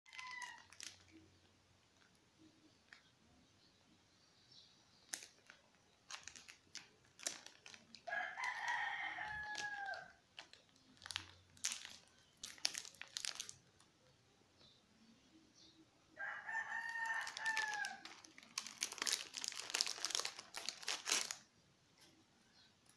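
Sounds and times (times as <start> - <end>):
dog crunching crackers: 5.1 - 13.6, 16.8 - 21.4
rooster crowing: 8.0 - 10.2, 16.2 - 18.1.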